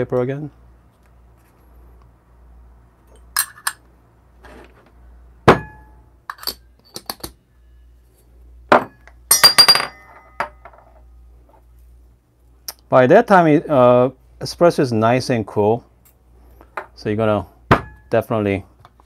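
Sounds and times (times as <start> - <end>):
metal tools clinking: 3.1 - 3.8, 6.3 - 7.2, 9.3 - 11.0.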